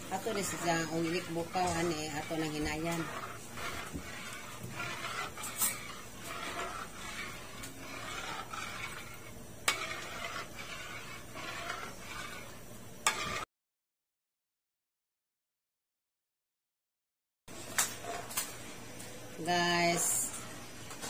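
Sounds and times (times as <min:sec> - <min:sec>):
metal ladle scraping a wok: 0:00.0 - 0:13.4, 0:17.7 - 0:18.5, 0:19.8 - 0:21.0.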